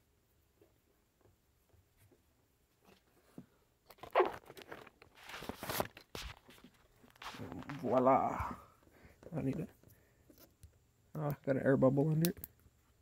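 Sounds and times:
rubbing rustle near microphone: 4.0 - 8.0.

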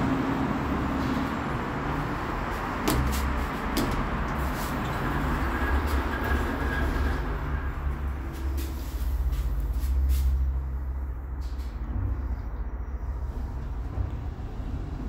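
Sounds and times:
lift doors sliding shut: 0.8 - 7.7.

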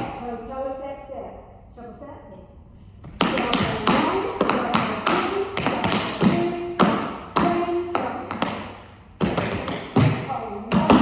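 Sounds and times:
tap shoes on wooden floor: 3.1 - 11.0.

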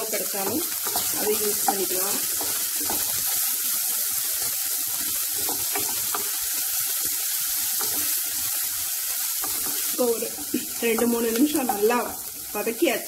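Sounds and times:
vegetables sizzling in oil: 0.0 - 13.0
spatula scraping pan: 0.4 - 3.5.

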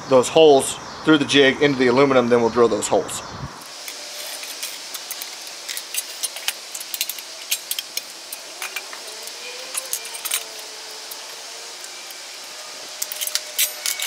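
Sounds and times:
locking pliers clicking: 5.0 - 11.3, 13.0 - 14.0.

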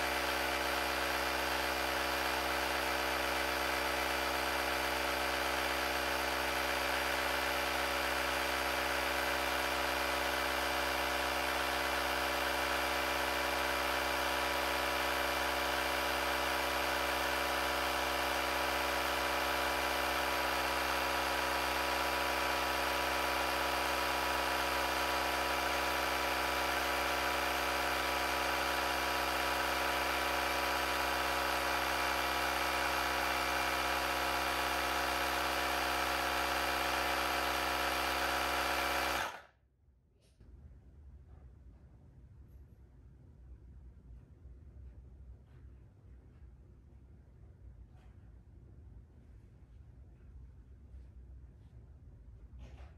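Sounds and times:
electric compressor running: 0.0 - 39.5.

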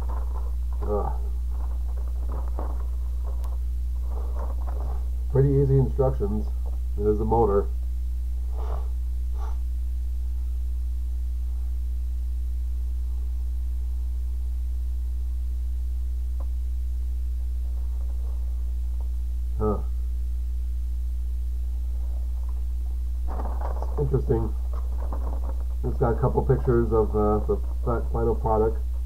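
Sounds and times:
low electrical mains hum: 0.0 - 29.0.

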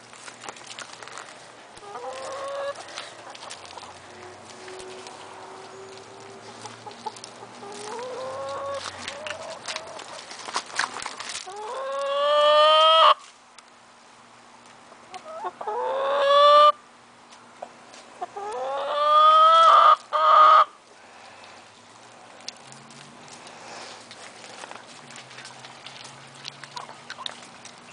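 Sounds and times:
chickens calling: 1.8 - 13.2, 14.9 - 16.8, 17.6 - 21.8, 23.3 - 27.9.

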